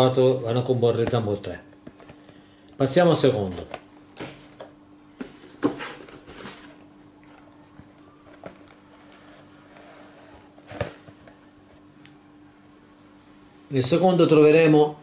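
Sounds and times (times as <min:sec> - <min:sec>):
cardboard scraping rustles: 0:05.2 - 0:06.8, 0:08.3 - 0:11.3.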